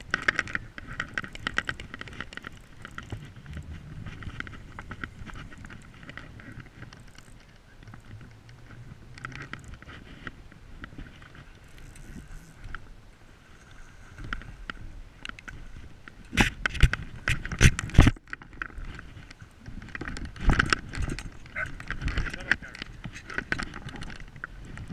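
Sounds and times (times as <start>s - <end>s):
fishing reel winding: 4.2s - 8.2s, 11.3s - 12.8s.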